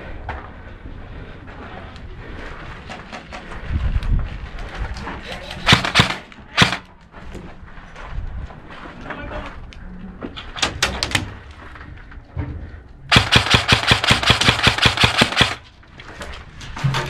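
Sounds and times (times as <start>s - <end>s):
airsoft rifle full-auto burst: 5.7s - 6.8s, 13.1s - 15.6s.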